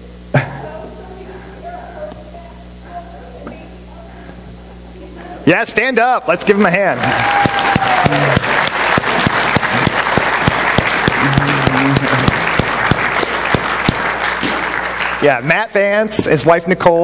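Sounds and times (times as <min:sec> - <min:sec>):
crowd applauding: 0:06.4 - 0:15.9.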